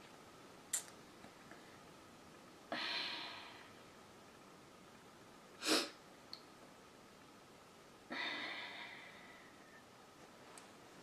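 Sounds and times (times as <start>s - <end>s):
woman breathing: 2.7s - 3.9s, 8.1s - 9.8s.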